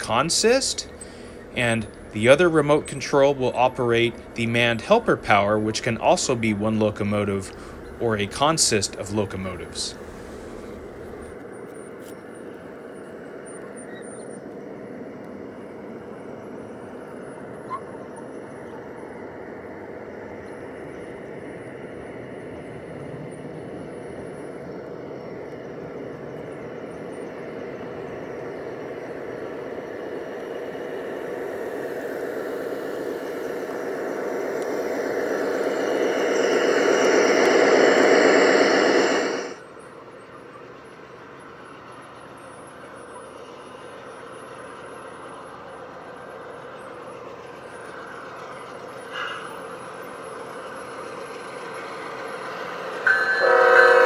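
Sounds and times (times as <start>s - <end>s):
model train wheels rumbling: 0.0s - 11.4s, 24.8s - 39.6s.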